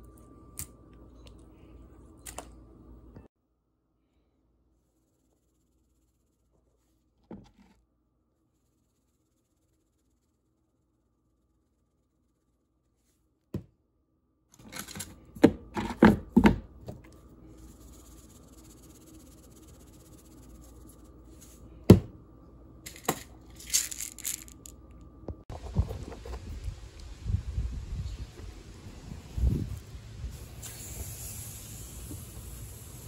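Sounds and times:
knocks on cutting board: 21.9 - 22.1
outdoor hiss: 26.4 - 33.0.

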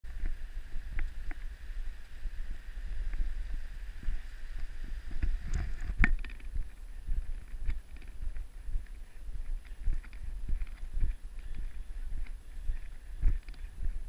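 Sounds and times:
wind buffeting microphone: 0.1 - 14.0
footsteps on footbridge: 3.1 - 14.0.

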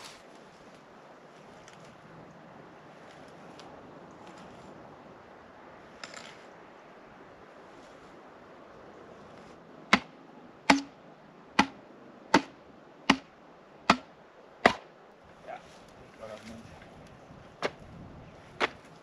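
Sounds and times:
hammer blows on wooden post: 9.9 - 11.0.

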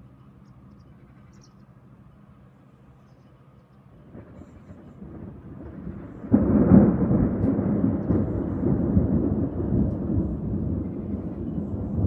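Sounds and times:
thunder clap and rumble: 4.0 - 12.0.

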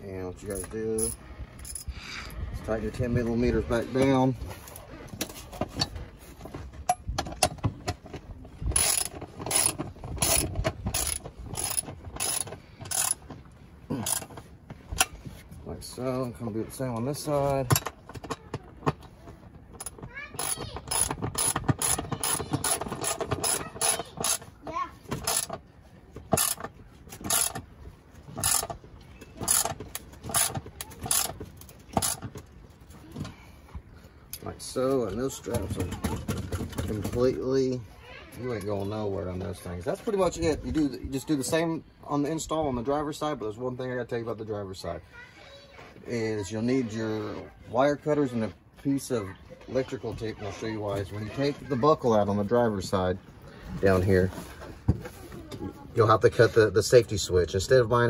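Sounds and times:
ratchet clicking: 8.7 - 13.2, 14.0 - 14.3, 19.8 - 24.5, 25.2 - 25.6, 26.3 - 27.6, 28.4 - 28.7, 29.4 - 32.2.

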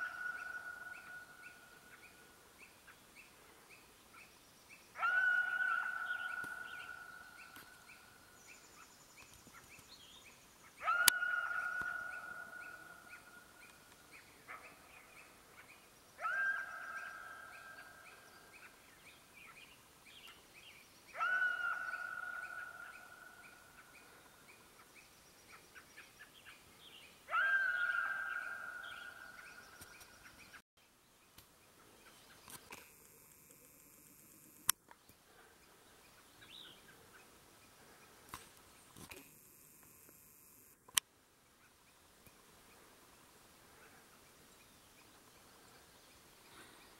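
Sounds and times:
coyote calling: 0.0 - 2.1, 5.0 - 7.6, 10.7 - 13.5, 16.2 - 18.8, 21.1 - 24.2, 27.3 - 29.6.

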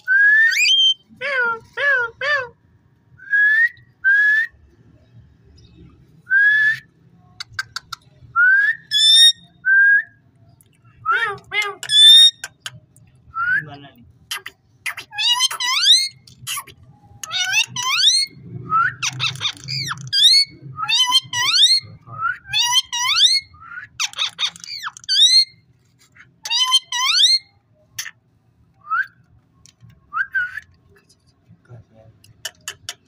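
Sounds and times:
parrot whistling: 0.0 - 1.0, 8.5 - 9.5
parrot chatter: 14.3 - 18.3, 19.0 - 21.8, 24.0 - 25.5.

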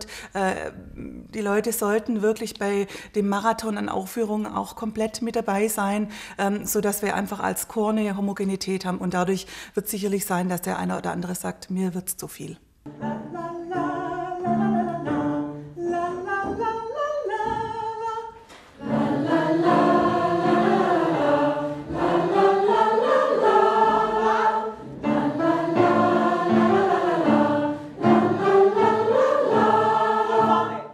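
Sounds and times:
mixed choir singing: 18.8 - 30.9.

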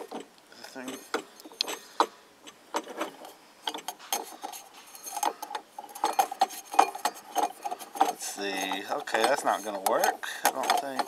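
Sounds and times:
metal clinking and rattling: 0.0 - 11.0
short metallic rings: 3.0 - 11.0.

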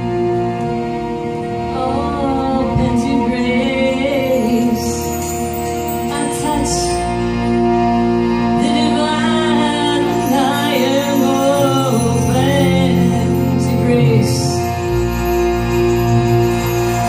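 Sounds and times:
bass notes: 0.0 - 17.0
instrumental drone: 0.0 - 17.0
woman singing: 1.7 - 7.2, 8.5 - 14.9.

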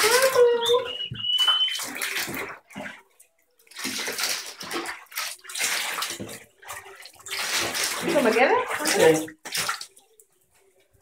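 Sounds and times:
bathwater splashing and sloshing: 0.0 - 11.0.

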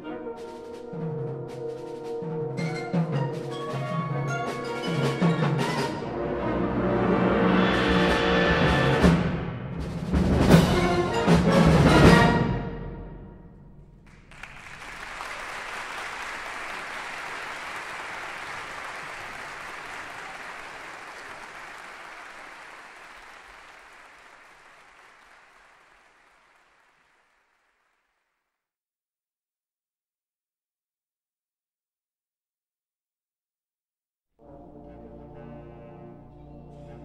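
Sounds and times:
audience applauding: 14.0 - 28.4.

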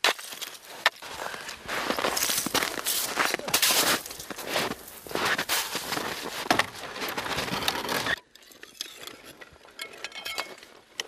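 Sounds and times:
boots crunching on snow: 0.0 - 7.6
ice clinking and scraping: 1.3 - 10.8.

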